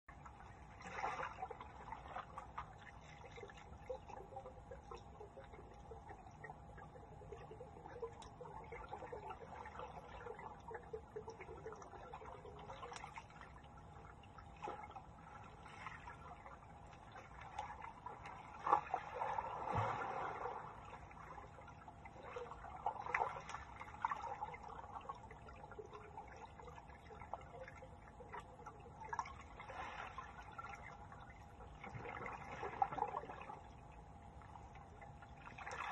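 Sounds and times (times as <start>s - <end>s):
muffled underwater splashing: 0.0s - 35.9s
small underwater clicks: 2.4s - 14.4s.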